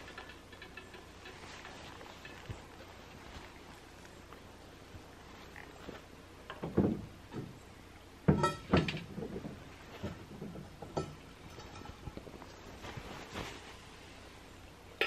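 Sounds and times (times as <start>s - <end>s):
metal cookware clinking: 0.0s - 2.5s, 8.3s - 8.9s, 10.9s - 12.2s.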